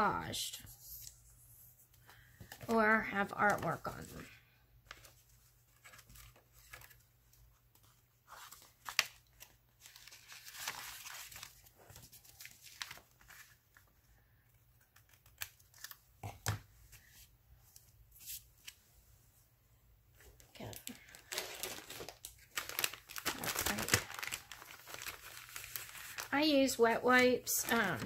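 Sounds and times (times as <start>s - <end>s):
paper rustling and crinkling: 2.1s - 14.1s, 20.2s - 28.0s.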